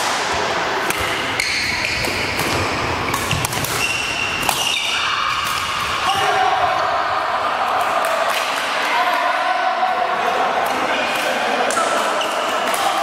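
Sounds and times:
rackets striking shuttlecocks: 0.8 - 6.0
sneakers squeaking on court floor: 1.0 - 5.4.

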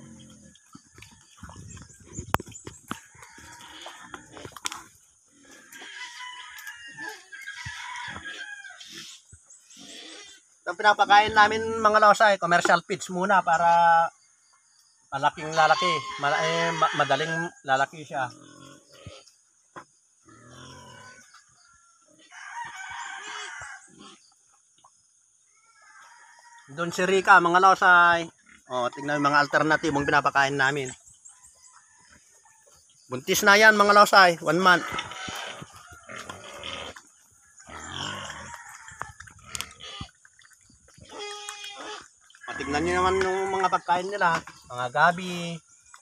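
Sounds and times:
rooster crowing: 3.0 - 4.3, 5.6 - 8.9, 15.4 - 17.5, 22.2 - 23.8, 25.8 - 26.8, 37.6 - 39.6, 42.4 - 44.4
pig slurping and chewing: 37.7 - 43.3.

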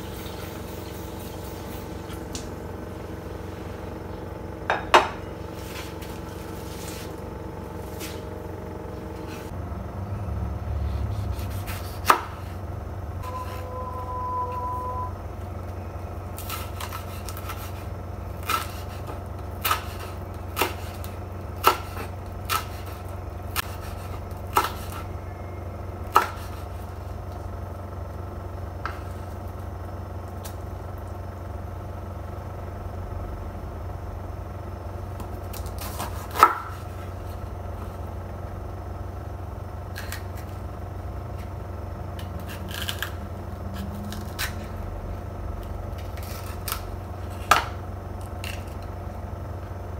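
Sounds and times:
low hum: 0.0 - 18.5, 36.8 - 49.9.

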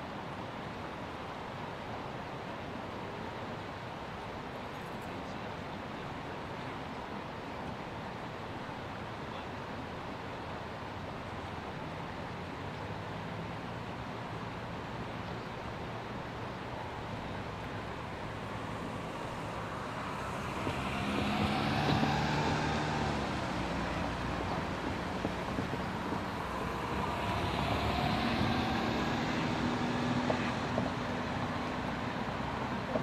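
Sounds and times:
vehicle approaching: 12.2 - 33.0
vehicle passing: 15.8 - 33.0.

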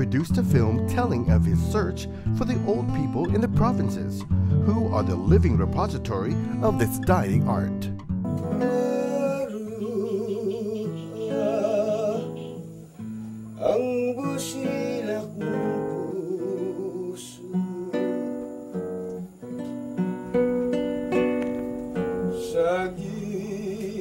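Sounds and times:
plucked acoustic guitar: 0.0 - 24.0
person singing with vibrato: 8.4 - 12.8, 13.6 - 18.6, 22.4 - 24.0.

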